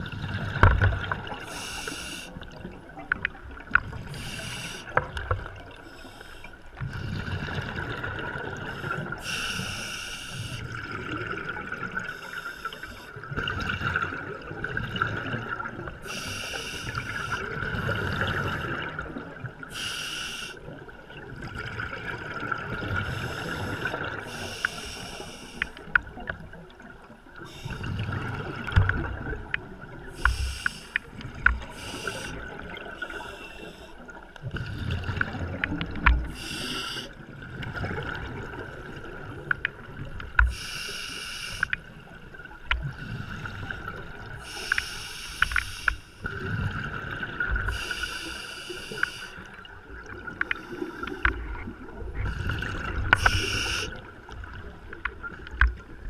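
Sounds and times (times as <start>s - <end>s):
regulator hissing inhalations: 1.5s - 2.4s, 4.2s - 5.0s, 8.8s - 10.6s, 16.0s - 17.4s, 19.7s - 20.6s, 23.2s - 25.8s, 30.2s - 32.4s, 33.0s - 34.0s, 36.3s - 37.2s, 40.5s - 41.8s, 44.4s - 46.3s, 47.7s - 49.5s, 53.1s - 54.0s.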